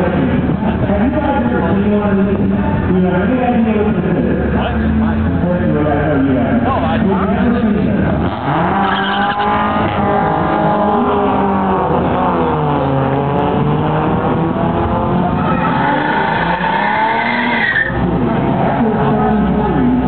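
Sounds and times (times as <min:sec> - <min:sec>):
car engine revving hard: 0:07.9 - 0:20.0
tyres squealing: 0:08.3 - 0:10.1, 0:15.3 - 0:18.0.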